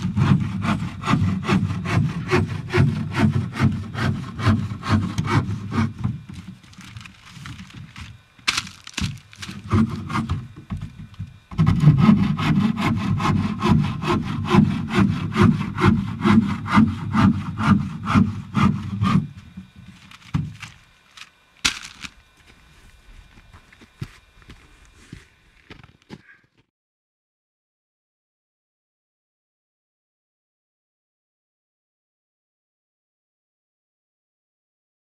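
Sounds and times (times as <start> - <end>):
hand saw cutting wood: 0.0 - 22.4.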